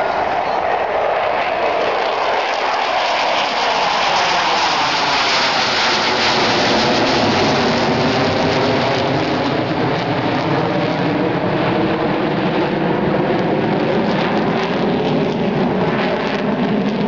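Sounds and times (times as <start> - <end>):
deep jet rumble: 0.0 - 17.0
jet engines roaring: 0.0 - 17.0.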